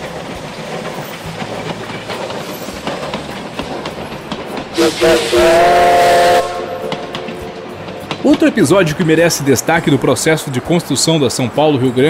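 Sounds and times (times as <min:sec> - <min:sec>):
steam locomotive clattering: 0:00.0 - 0:12.0
steam whistle: 0:04.8 - 0:07.6.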